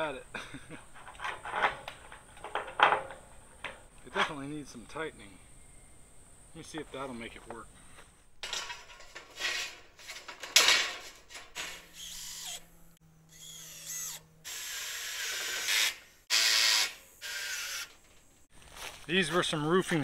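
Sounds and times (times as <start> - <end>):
metallic clank from tin sheet: 8.4 - 11.9
power drill whirring: 11.8 - 17.9.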